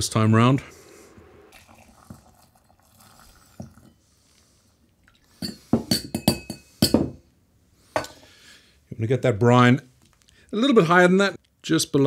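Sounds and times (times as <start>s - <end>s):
liquid trickling through funnel: 1.5s - 4.0s.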